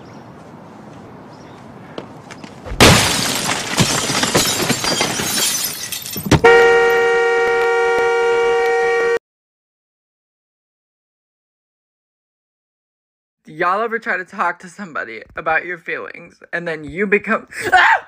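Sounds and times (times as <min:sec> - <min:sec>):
glass shattering under blows: 0:02.8 - 0:06.5
car horn blast: 0:06.4 - 0:09.2.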